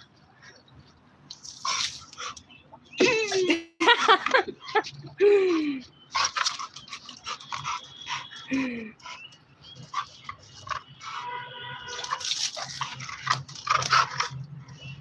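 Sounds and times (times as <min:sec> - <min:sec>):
water splashing: 0:11.7 - 0:14.8.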